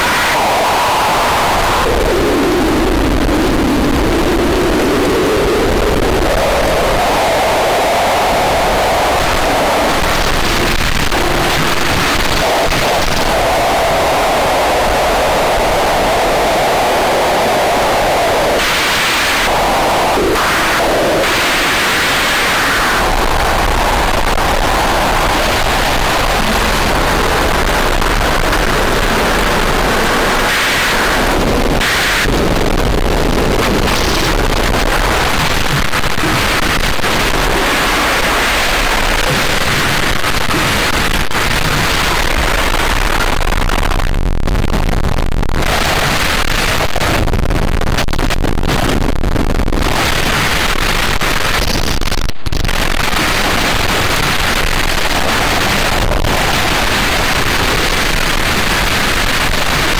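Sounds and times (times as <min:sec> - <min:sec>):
harsh static noise music: 0:00.0 - 0:59.9
deep rumble: 0:23.0 - 0:30.5, 0:31.1 - 0:46.0.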